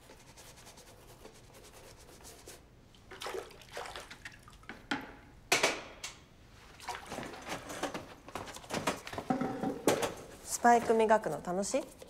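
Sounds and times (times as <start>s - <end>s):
water splashing in a bucket: 3.0s - 4.7s, 6.7s - 7.7s.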